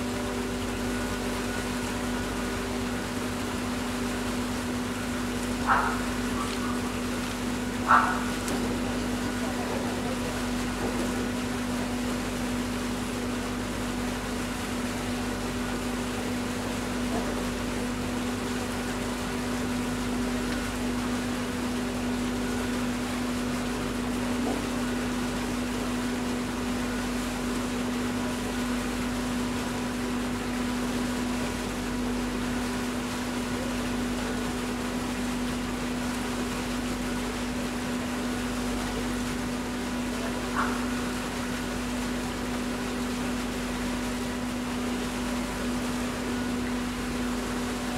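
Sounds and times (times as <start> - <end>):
rushing water: 0.0 - 47.9
ship machinery hum: 0.0 - 47.9.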